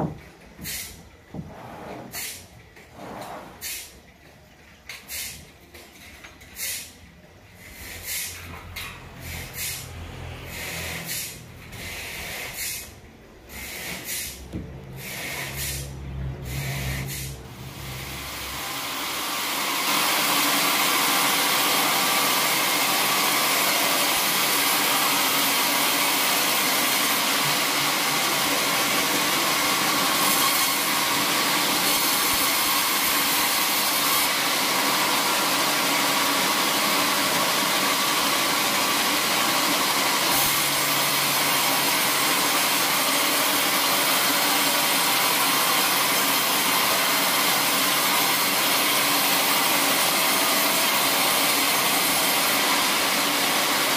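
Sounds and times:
wooden planks scraping and knocking: 0:00.0 - 0:03.8
band saw cutting log: 0:07.6 - 0:53.9.

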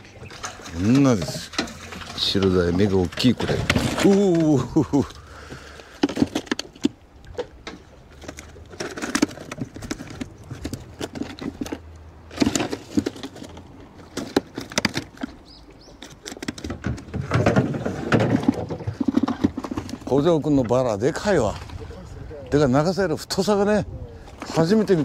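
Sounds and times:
fish flapping against plastic: 0:00.2 - 0:15.4.

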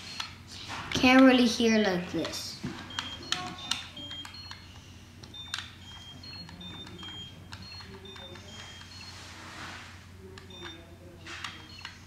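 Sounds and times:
high electronic toy beeps: 0:02.9 - 0:09.2, 0:10.5 - 0:10.8, 0:11.5 - 0:12.0.

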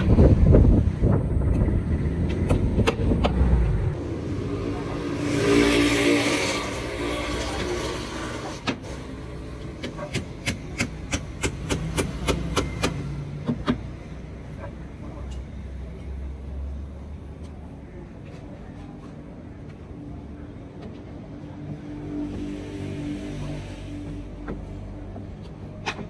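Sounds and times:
vehicle passing: 0:00.0 - 0:09.6.

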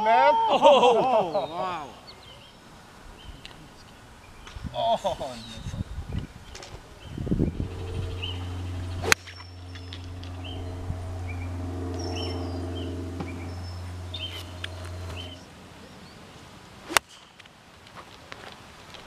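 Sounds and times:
birds chirping: 0:00.0 - 0:16.4
steady low hum: 0:02.0 - 0:15.6
golf club striking ball: 0:07.6 - 0:15.4.

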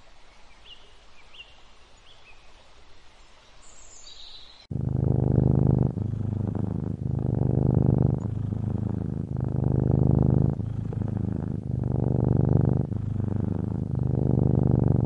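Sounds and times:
cat purring: 0:04.7 - 0:15.0.

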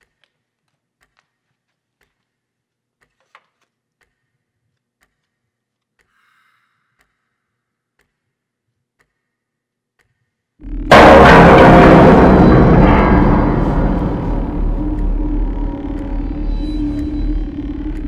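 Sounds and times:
faint clock ticking: 0:00.0 - 0:10.9.

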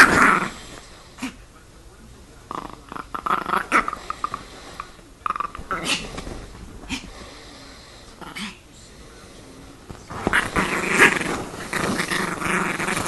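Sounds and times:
small dog growling: 0:00.0 - 0:01.4, 0:02.5 - 0:06.2, 0:08.1 - 0:08.6, 0:10.1 - 0:13.0.

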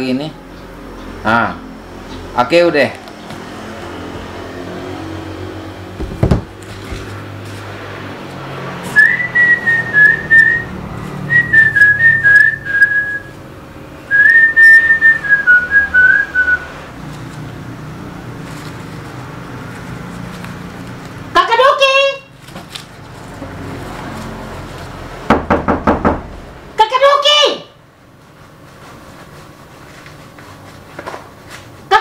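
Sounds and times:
low thump: 0:06.0 - 0:06.6
person whistling a tune: 0:09.0 - 0:10.7, 0:11.3 - 0:13.4, 0:14.1 - 0:16.7.

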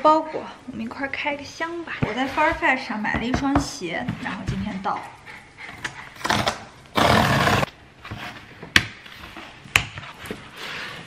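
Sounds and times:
cardboard tearing: 0:06.2 - 0:07.7.

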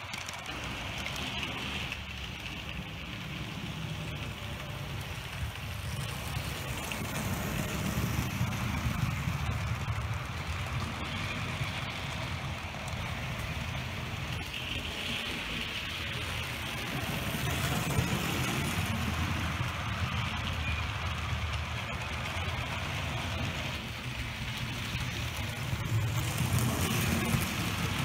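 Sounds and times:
model train wheels rumbling on rails: 0:00.0 - 0:28.0.

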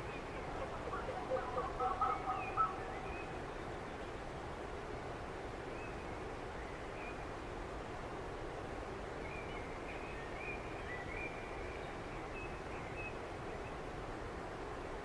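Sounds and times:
distant bird calls: 0:00.0 - 0:04.2
background hiss: 0:00.0 - 0:15.0.

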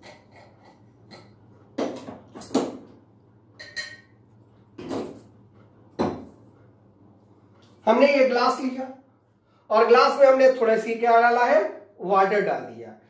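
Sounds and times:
glass knocks and clinks: 0:03.6 - 0:04.2.

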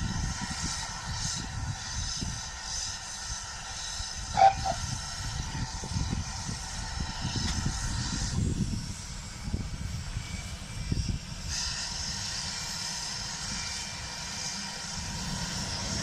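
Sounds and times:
steam train rumble: 0:00.0 - 0:16.0
loud two-part whistle tone: 0:04.4 - 0:04.8.

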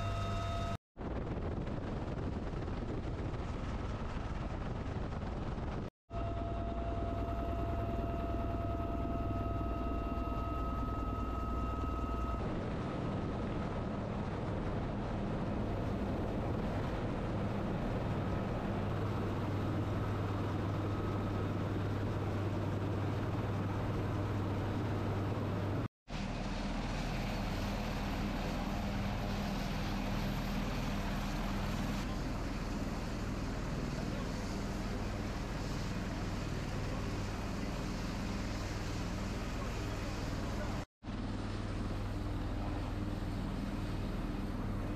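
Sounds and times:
helicopter rotors and engines: 0:00.0 - 0:44.9
wind rush: 0:01.0 - 0:05.9.

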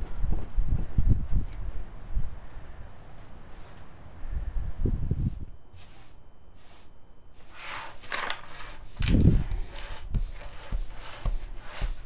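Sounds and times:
broom sweeping hard floor: 0:03.2 - 0:03.9, 0:05.1 - 0:12.0
sweeping into plastic dustpan: 0:05.7 - 0:12.0.

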